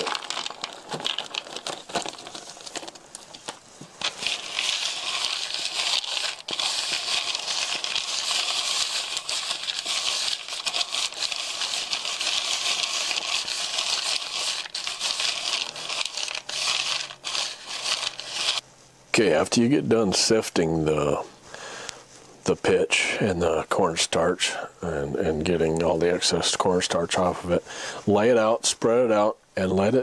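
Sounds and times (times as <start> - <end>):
hard pieces rubbed in plastic colander: 0.0 - 18.6.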